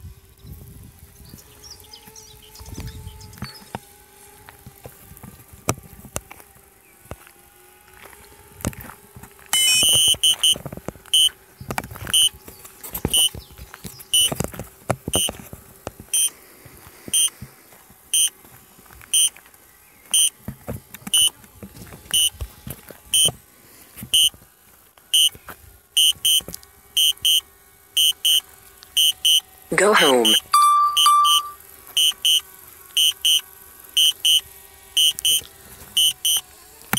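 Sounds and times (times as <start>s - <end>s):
high electronic warning beeps: 9.6s - 10.6s, 29.0s - 32.4s.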